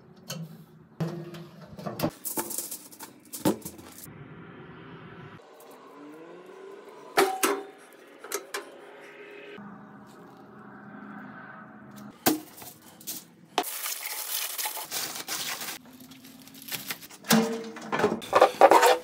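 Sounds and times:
aluminium foil crinkling: 0:12.7 - 0:17.3.

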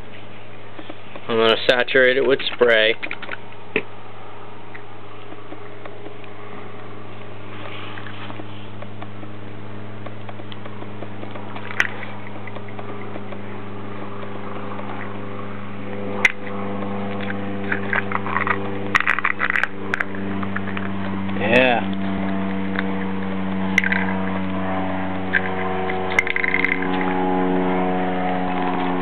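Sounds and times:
low mechanical hum: 0:00.0 - 0:29.0
sharp clicks: 0:00.7 - 0:03.9, 0:10.0 - 0:15.2.

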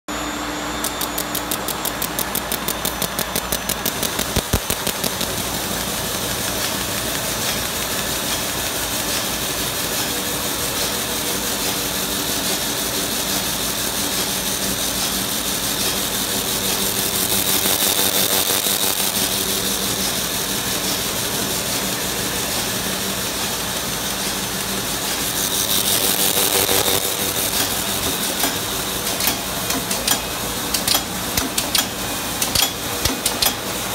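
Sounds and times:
rapid ticking: 0:01.1 - 0:08.0.

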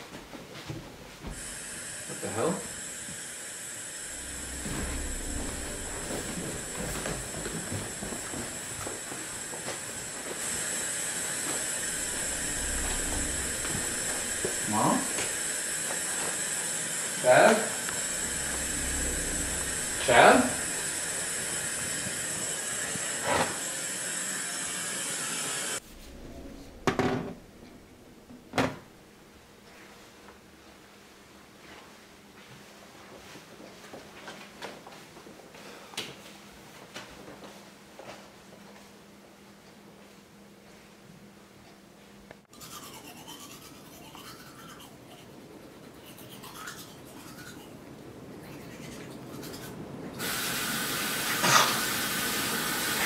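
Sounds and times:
low room hum: 0:00.0 - 0:23.0, 0:25.8 - 0:50.2
television static hiss: 0:01.4 - 0:29.0
toothbrush scrubbing teeth: 0:42.5 - 0:50.3.

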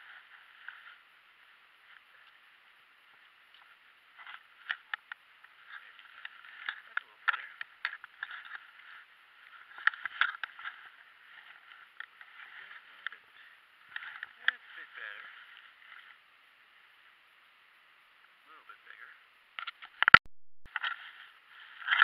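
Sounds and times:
dry grass rustling: 0:00.0 - 0:17.4, 0:19.6 - 0:22.0
faint steady hiss: 0:00.0 - 0:20.0
sharp clicks and snaps: 0:19.6 - 0:20.3.

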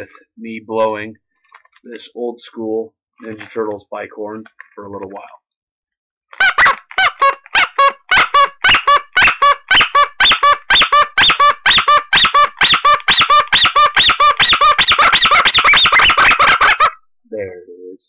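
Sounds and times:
toy bike horn honking: 0:06.5 - 0:17.0.

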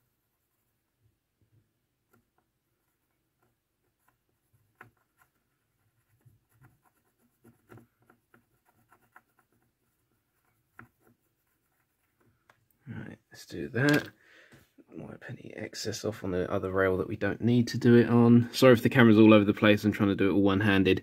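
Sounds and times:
pencil scratching and tapping: 0:00.0 - 0:12.7.

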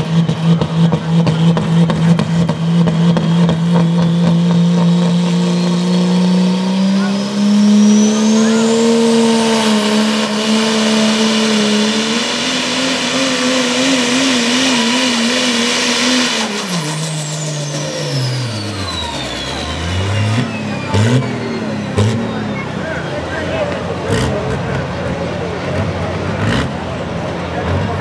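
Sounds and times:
diesel truck engine at full throttle: 0:00.0 - 0:28.0
engine revving: 0:00.0 - 0:28.0.

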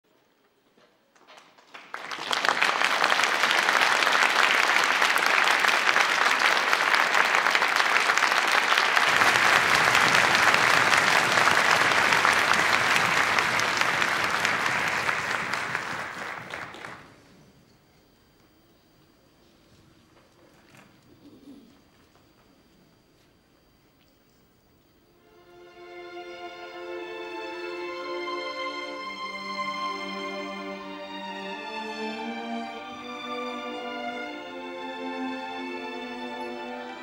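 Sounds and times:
audience applauding: 0:01.1 - 0:17.4.

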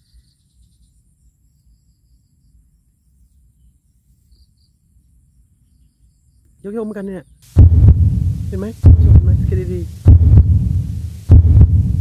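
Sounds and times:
low rumble: 0:07.5 - 0:12.0.

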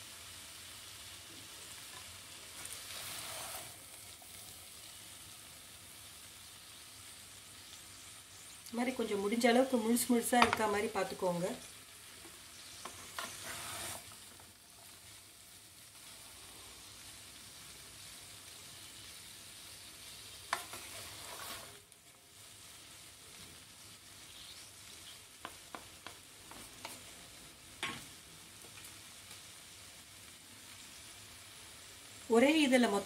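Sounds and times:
noodles sizzling faintly in a pan: 0:00.0 - 0:33.0
spatula scraping a pan: 0:01.9 - 0:03.8, 0:12.7 - 0:14.3, 0:20.5 - 0:21.8.

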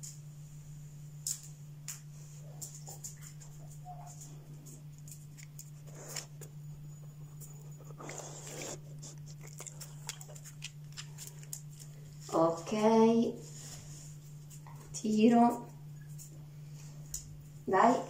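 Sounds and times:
steady low hum: 0:00.0 - 0:18.0
dog claws clicking on tiles: 0:01.2 - 0:06.4, 0:07.4 - 0:11.9.

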